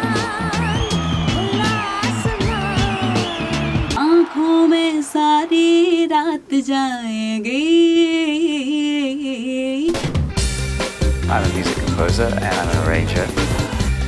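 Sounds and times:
woman singing unaccompanied: 0.0 - 3.2, 4.0 - 10.0
band with woman singing: 0.0 - 6.8.

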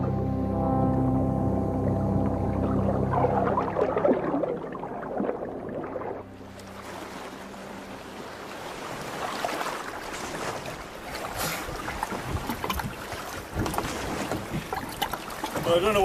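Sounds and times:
music score: 0.0 - 9.8
water sloshing and waves: 0.0 - 16.0.

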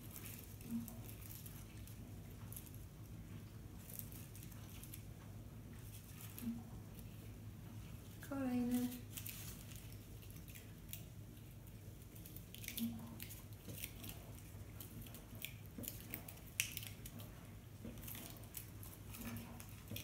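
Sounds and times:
faint low hum: 0.0 - 20.0
sprigs and cones rustling: 0.0 - 20.0
small clicks and snaps: 8.7 - 20.0.

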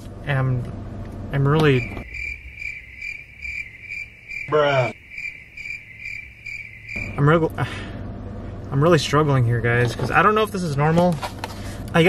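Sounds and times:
crickets chirping: 1.5 - 8.2.

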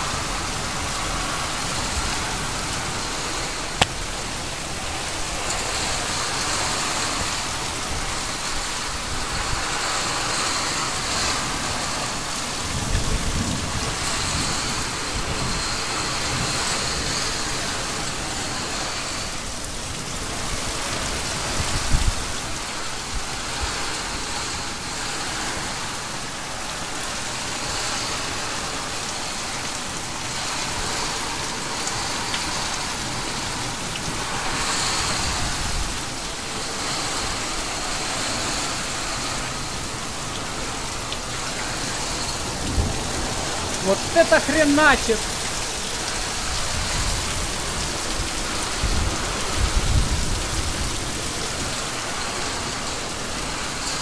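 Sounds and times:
heavy rain on metal roofs: 0.0 - 54.0.

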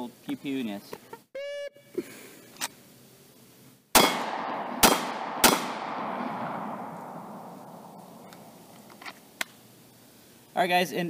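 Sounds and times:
pistol shots with echo: 4.0 - 8.5.

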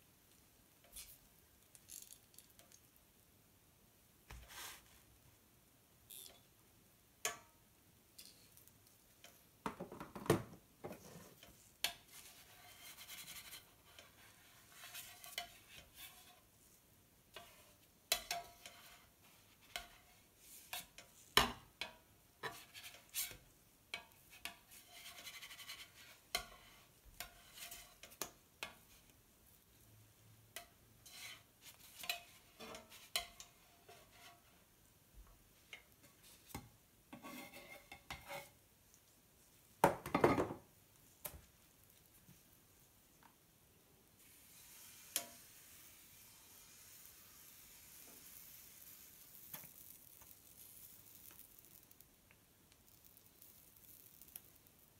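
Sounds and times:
spatula scraping a slate plate: 11.2 - 16.5, 17.4 - 21.2, 24.0 - 28.9, 31.0 - 34.5, 37.1 - 38.6.

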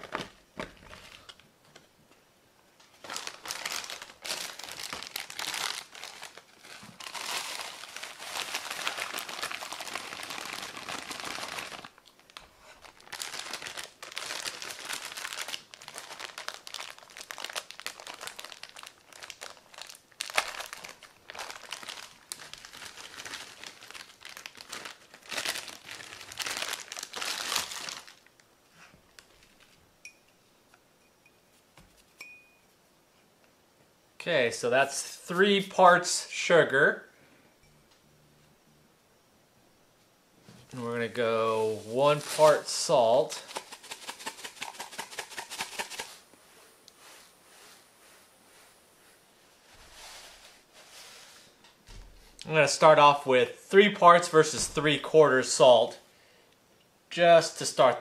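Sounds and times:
plastic bag crinkling: 2.9 - 28.4, 41.7 - 46.2.

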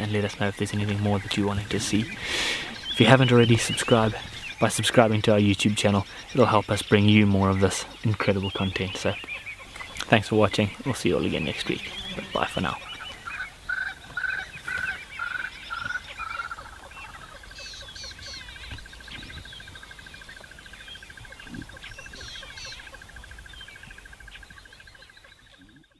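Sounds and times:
bird chirps: 0.0 - 25.9
animal call trilling: 7.6 - 23.4.

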